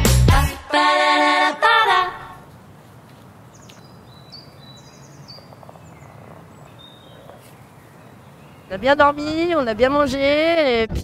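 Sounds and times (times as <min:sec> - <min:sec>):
music: 0:00.0 - 0:02.2
high bird chirps: 0:02.7 - 0:09.7.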